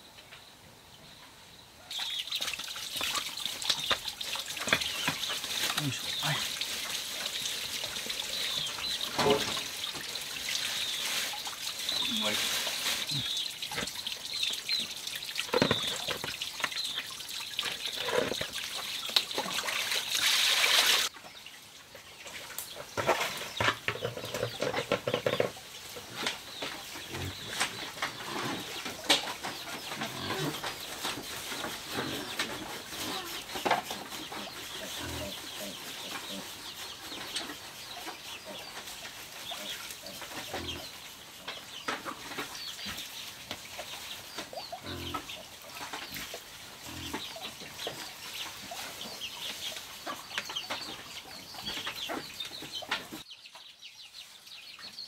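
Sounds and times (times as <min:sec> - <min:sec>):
water splashing in basin: 0:01.9 - 0:21.1.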